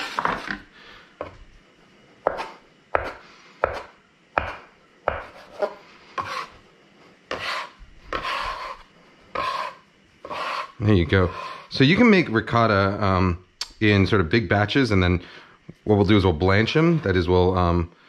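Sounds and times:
blade scraping board: 0.0 - 0.7, 5.2 - 6.6, 7.3 - 11.8
knife chopping dough on board: 2.2 - 6.5, 7.3 - 8.8.

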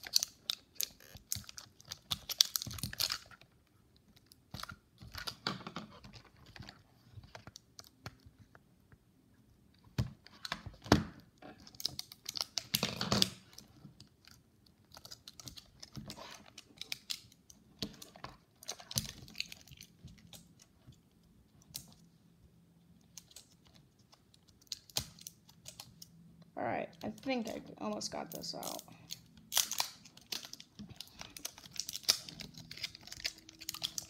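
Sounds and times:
plastic toy parts clicking: 0.0 - 3.4, 28.6 - 34.0
plastic crinkling: 0.0 - 8.5, 11.5 - 22.0, 23.0 - 26.2, 26.8 - 34.0.

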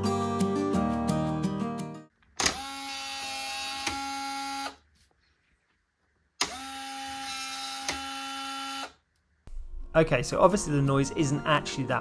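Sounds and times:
lock motor whirring: 2.4 - 4.8, 6.4 - 9.0.

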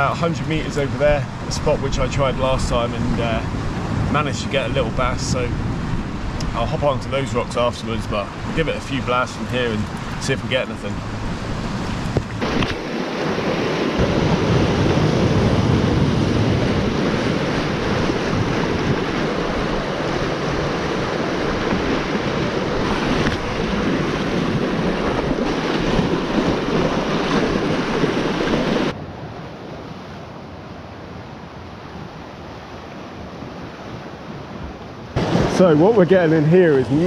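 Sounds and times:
surf washing against rocks: 0.0 - 37.0
wind buffeting microphone: 0.0 - 37.0.

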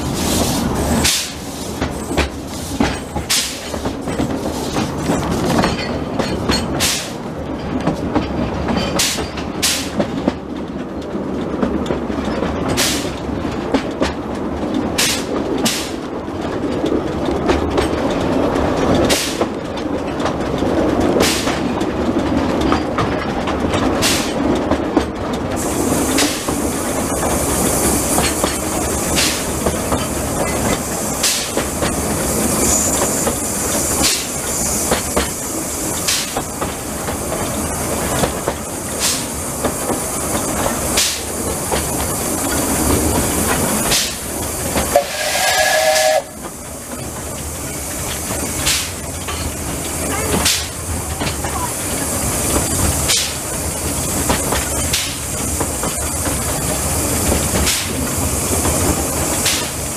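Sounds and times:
train running rumble: 0.0 - 59.9
wheels clicking over rail joints: 0.0 - 59.9.

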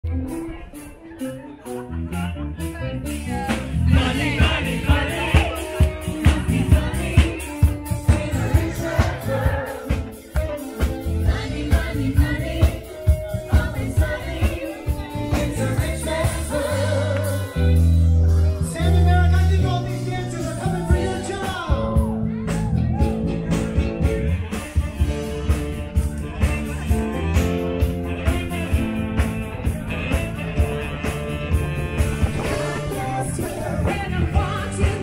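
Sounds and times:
live band dance music: 0.0 - 35.0
people singing: 3.3 - 18.1, 18.8 - 22.2, 32.2 - 35.0.

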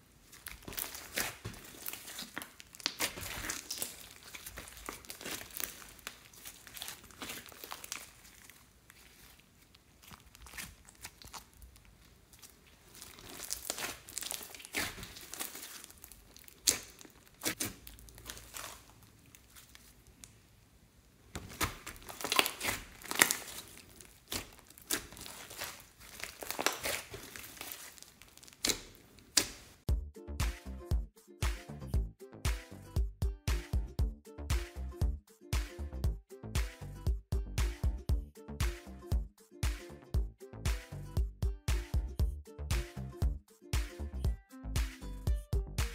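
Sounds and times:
slime crackling and popping: 0.2 - 20.6, 21.2 - 29.9.

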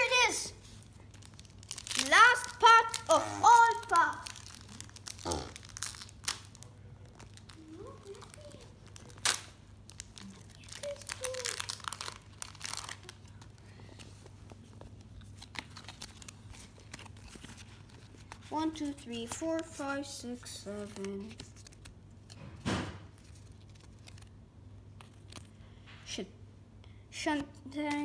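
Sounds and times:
foil wrapper crinkling and tearing: 0.7 - 13.8, 15.2 - 18.5, 23.1 - 24.4.

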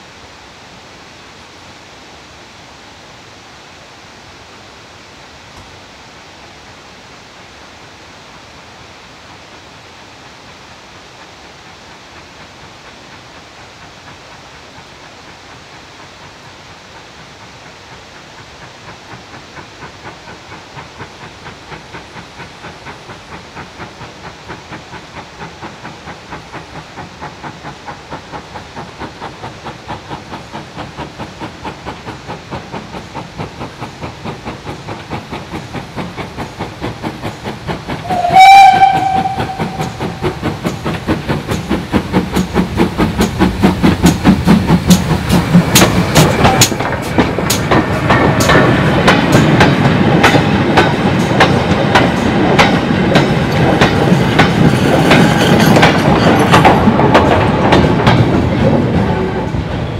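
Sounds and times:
steam locomotive exhaust beats: 3.0 - 59.9
steam whistle blast: 38.0 - 40.2.

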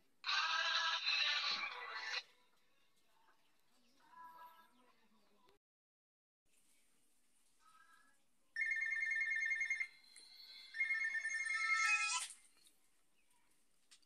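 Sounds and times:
mobile phone ringing: 8.6 - 12.2.

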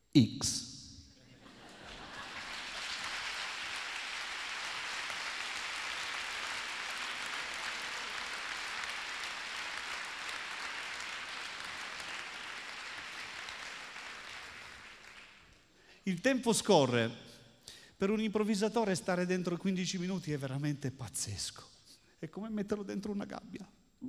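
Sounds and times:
audience applauding: 1.5 - 15.6.

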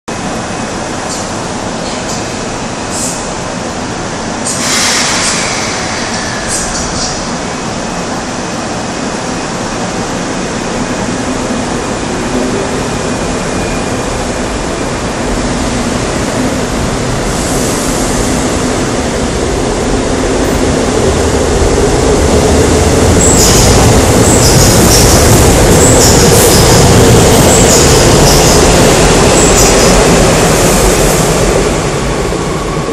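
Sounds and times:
train wheels squealing: 4.5 - 7.4, 23.2 - 30.8.

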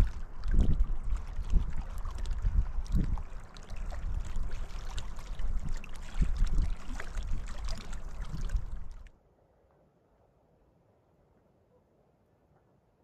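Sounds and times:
waves lapping against rocks: 0.0 - 9.1
wind buffeting microphone: 0.0 - 9.1.

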